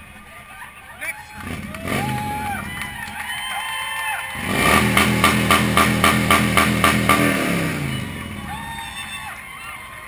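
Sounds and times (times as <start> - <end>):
motorcycle engine revving: 1.4 - 3.0, 4.4 - 8.7.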